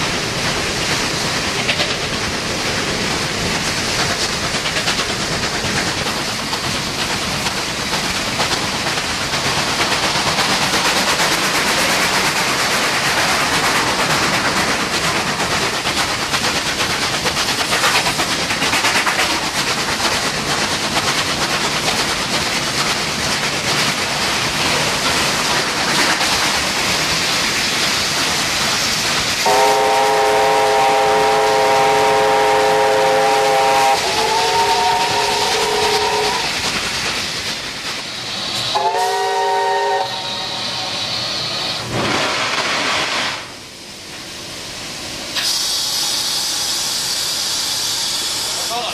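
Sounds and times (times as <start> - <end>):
steam locomotive running: 0.0 - 48.9
steam whistle chord: 29.4 - 36.4, 38.8 - 40.9.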